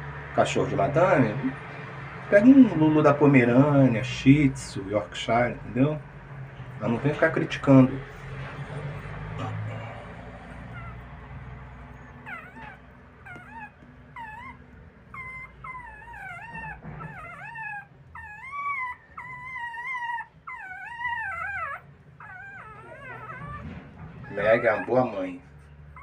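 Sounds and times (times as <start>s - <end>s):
dog whimpering: 8.6s - 26.0s.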